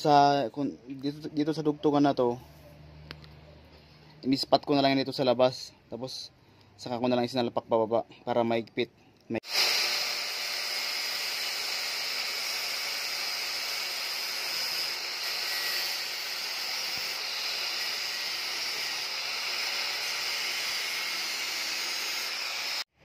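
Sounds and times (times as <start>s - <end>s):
angle grinder on metal: 9.4s - 22.9s.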